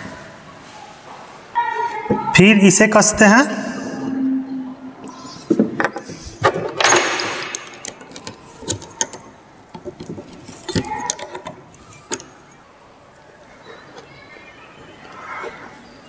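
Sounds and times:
metal chain parts clinking: 0:06.8 - 0:08.4.

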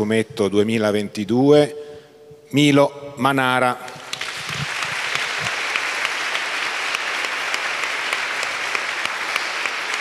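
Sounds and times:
audience applauding: 0:04.0 - 0:10.0.

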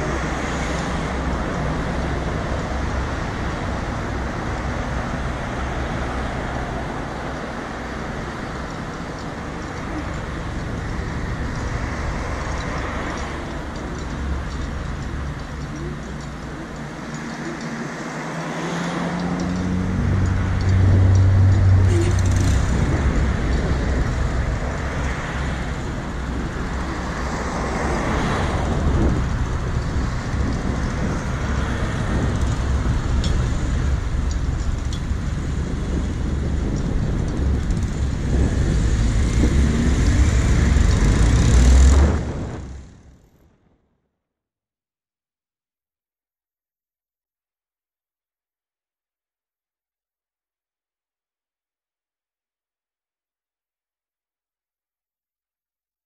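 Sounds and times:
cross traffic passing by: 0:00.0 - 0:43.8
vehicle passing with low drone: 0:00.0 - 0:43.9
low rumble of engines: 0:00.0 - 0:44.0.

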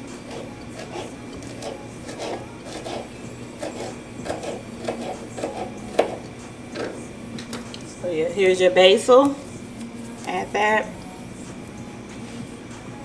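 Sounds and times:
knife chopping on cutting board: 0:00.3 - 0:06.2.

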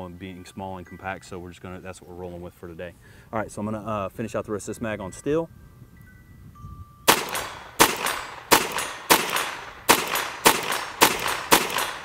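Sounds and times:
pistol shots: 0:07.1 - 0:12.0
steel target ringing: 0:07.1 - 0:12.0.

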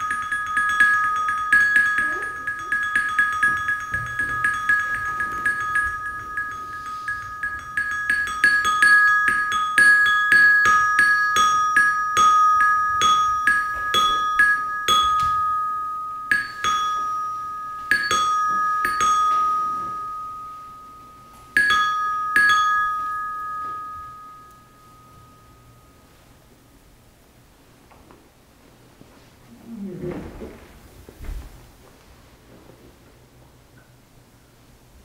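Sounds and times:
high-pitched metal chime ringing: 0:00.0 - 0:26.5.

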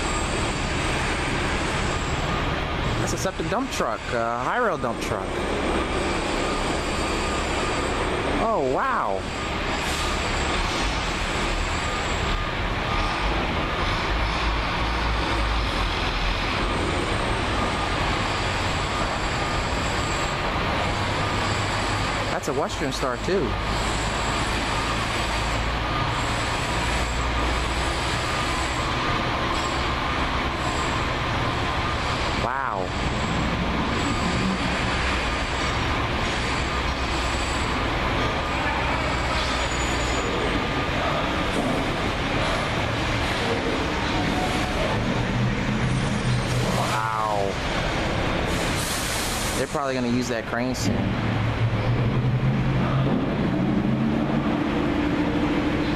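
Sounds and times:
rail wheels rolling: 0:00.0 - 0:08.4, 0:09.1 - 0:50.4, 0:51.0 - 0:55.9
diesel truck engines running: 0:00.0 - 0:55.9
faint high squeal: 0:38.6 - 0:40.5.

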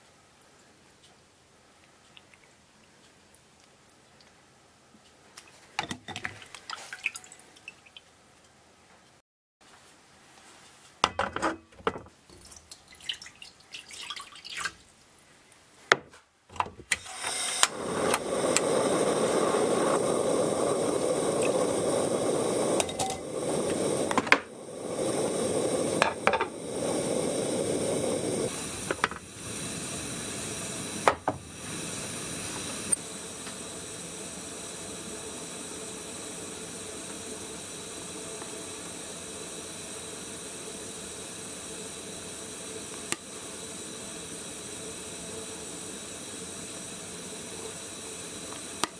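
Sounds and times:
water bubbling in a pot: 0:12.4 - 0:15.1, 0:17.8 - 0:48.9.

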